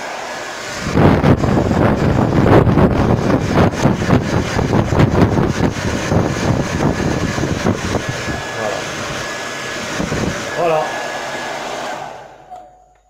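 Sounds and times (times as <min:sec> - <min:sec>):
airflow gusting on microphone: 0:00.0 - 0:12.5
hair dryer running: 0:00.0 - 0:13.0.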